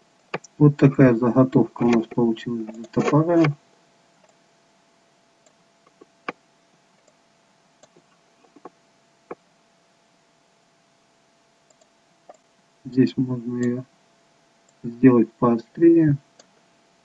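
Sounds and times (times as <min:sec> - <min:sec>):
faint steady hum: 0:00.0 - 0:17.0
computer mouse clicks: 0:01.8 - 0:03.6, 0:07.0 - 0:07.2, 0:07.8 - 0:09.4, 0:11.7 - 0:12.5.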